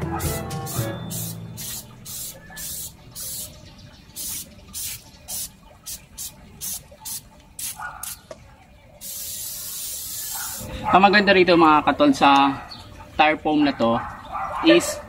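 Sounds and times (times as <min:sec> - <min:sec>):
aerosol can spraying hiss: 0:00.7 - 0:03.5, 0:04.2 - 0:08.2, 0:09.0 - 0:10.6.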